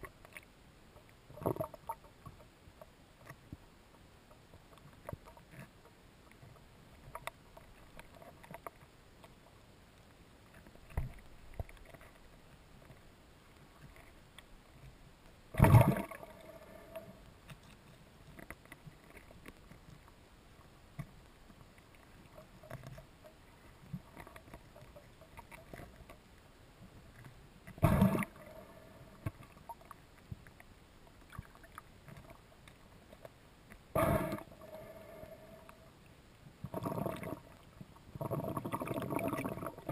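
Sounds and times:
faint underwater hiss: 0:00.0 - 0:39.9.

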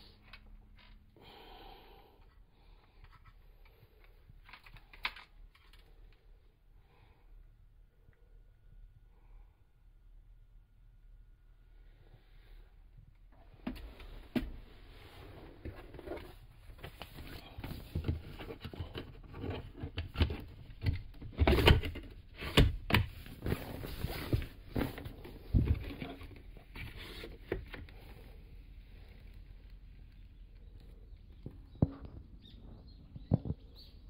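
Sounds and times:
rustling and scraping: 0:13.4 - 0:33.9.

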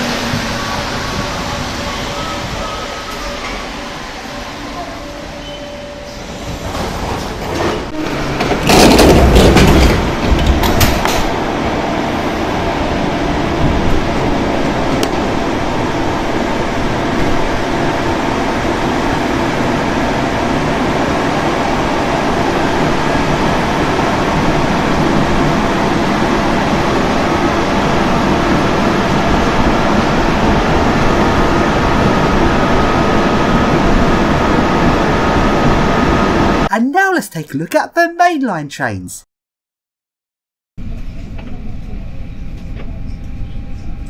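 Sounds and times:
train clatter and knocks: 0:00.0 - 0:03.9, 0:06.4 - 0:11.7, 0:13.4 - 0:15.5
metro train running noise: 0:00.0 - 0:37.5, 0:40.8 - 0:44.0.

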